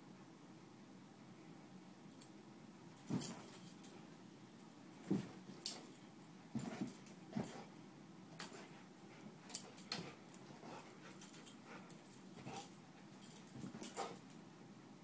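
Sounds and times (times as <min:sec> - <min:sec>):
dog paws thumping on carpet: 0:03.0 - 0:03.7, 0:05.0 - 0:07.7, 0:12.4 - 0:14.3.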